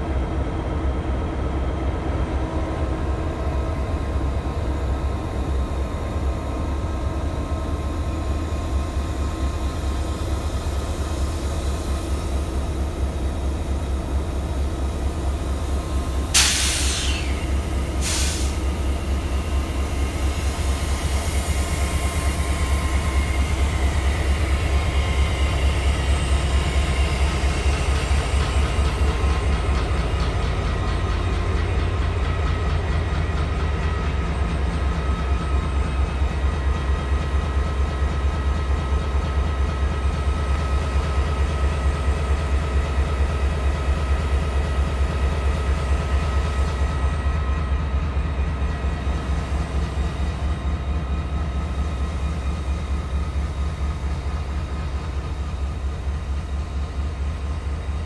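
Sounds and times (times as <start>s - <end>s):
short sharp hisses: 16.4s - 18.6s.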